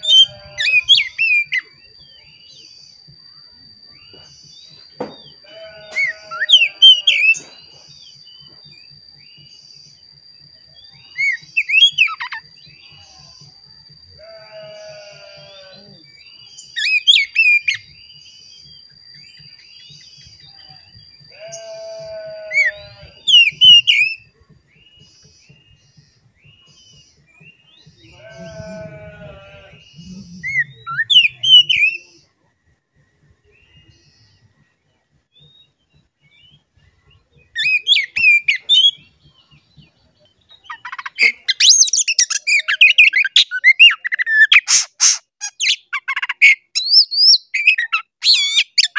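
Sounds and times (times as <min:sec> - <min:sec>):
faint steady high tone: 0:00.0 - 0:40.6
bird singing whistled phrases: 0:10.2 - 0:12.5, 0:30.0 - 0:32.2.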